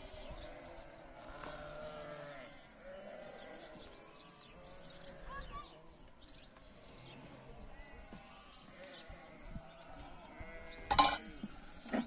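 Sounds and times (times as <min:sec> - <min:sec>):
sheep bleating: 0:00.6 - 0:03.9, 0:07.6 - 0:11.4.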